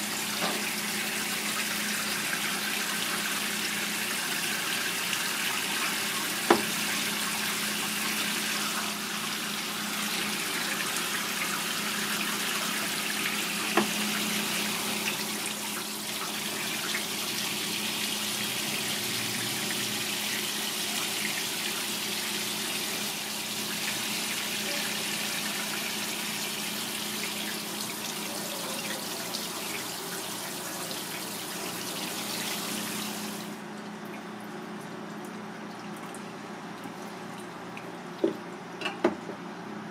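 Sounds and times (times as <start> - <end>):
tap water running into sink: 0.0 - 33.6.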